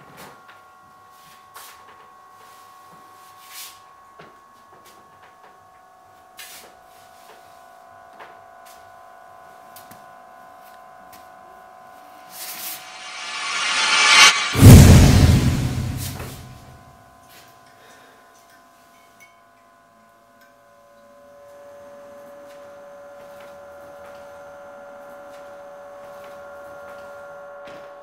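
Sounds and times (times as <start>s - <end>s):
rushing noise: 12.6s - 16.7s.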